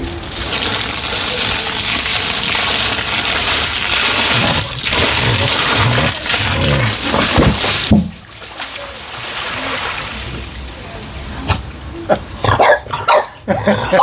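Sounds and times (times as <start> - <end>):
water gushing and splashing on grass: 0.0 - 11.0.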